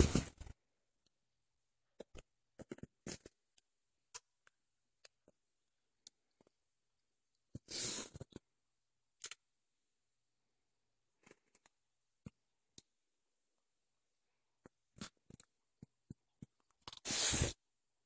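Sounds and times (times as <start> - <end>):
faint clicks and taps: 14.6 - 17.0.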